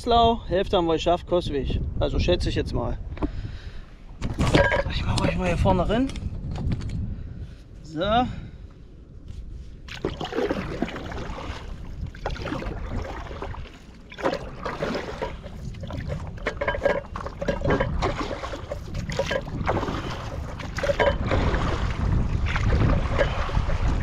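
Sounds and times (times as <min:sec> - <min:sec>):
wind on microphone: 0:00.0 - 0:24.0
river water splashing: 0:09.9 - 0:24.0.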